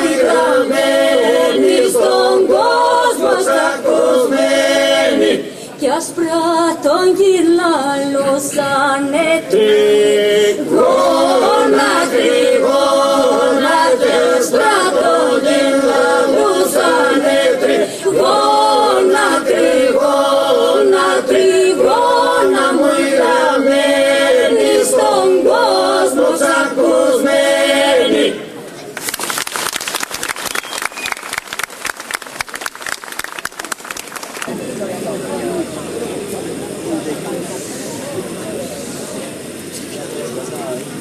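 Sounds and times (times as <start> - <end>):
group singing unaccompanied: 0.0 - 28.5
held vocal drone: 0.0 - 28.6.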